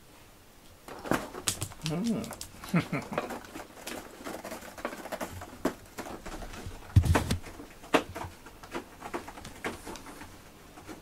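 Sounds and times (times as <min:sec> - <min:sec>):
cat scuffling among toys: 0:00.8 - 0:11.0.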